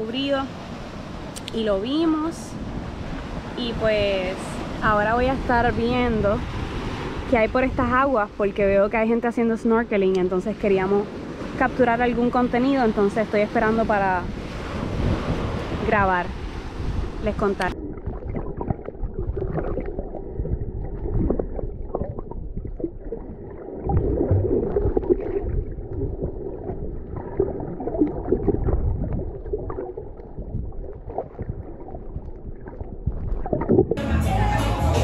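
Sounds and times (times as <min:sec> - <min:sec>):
underwater rumbling water wash: 0:13.4 - 0:34.0
water gurgling: 0:14.8 - 0:34.0.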